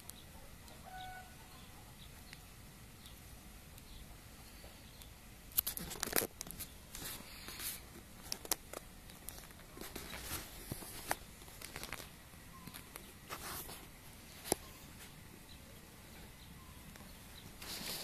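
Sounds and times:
kittens scuffling in grass: 0:17.5 - 0:18.0.

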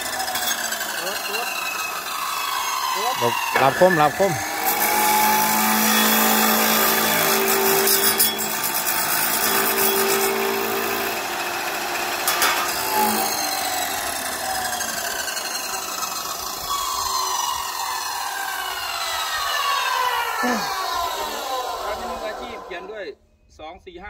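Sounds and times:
chop saw grinding metal: 0:00.0 - 0:22.8
motor whine spinning down: 0:12.9 - 0:23.1.

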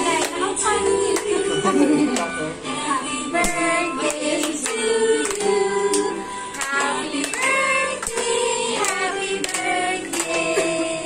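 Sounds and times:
scattered clapping: 0:00.0 - 0:00.5, 0:03.4 - 0:10.9
children and women singing: 0:00.0 - 0:02.0, 0:02.7 - 0:11.0.

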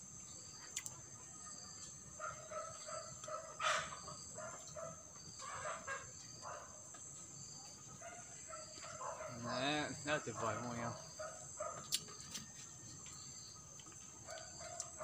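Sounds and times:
insects droning: 0:00.0 - 0:15.0
chickens clucking: 0:02.7 - 0:04.8.

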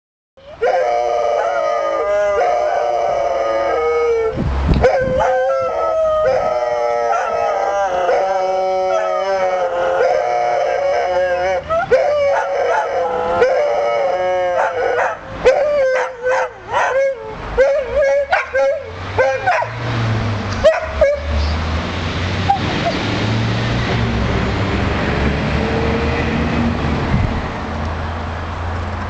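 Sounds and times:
dogs howling: 0:00.4 - 0:19.8.

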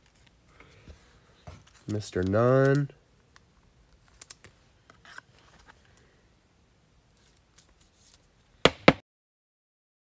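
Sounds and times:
trading cards rustling: 0:01.4 - 0:02.9, 0:03.9 - 0:05.8, 0:07.1 - 0:08.3.

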